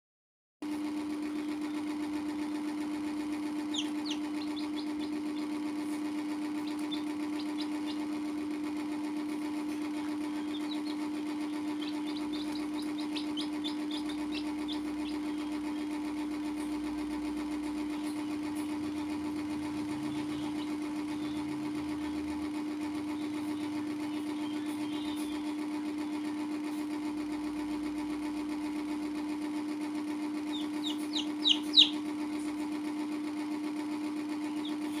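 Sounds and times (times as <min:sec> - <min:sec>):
mechanical hum: 0:00.6 - 0:35.0
chicks cheeping: 0:03.4 - 0:16.2, 0:17.9 - 0:22.2, 0:22.9 - 0:26.1, 0:30.4 - 0:32.5, 0:34.4 - 0:35.0.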